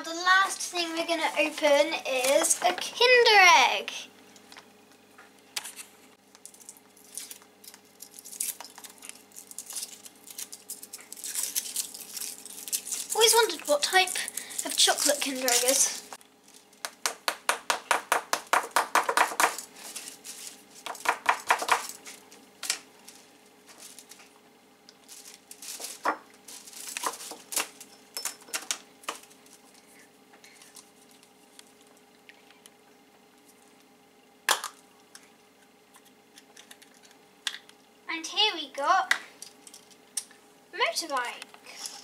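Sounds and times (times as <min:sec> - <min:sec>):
foil crinkling: 0:06.4 - 0:17.0, 0:19.5 - 0:28.0
rustling: 0:19.6 - 0:21.0, 0:25.0 - 0:28.0.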